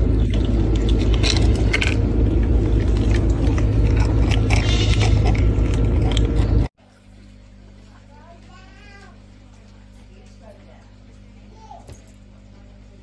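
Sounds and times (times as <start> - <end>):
loud low rumble: 0.0 - 6.7
kittens crunching dry kibble: 0.0 - 11.5.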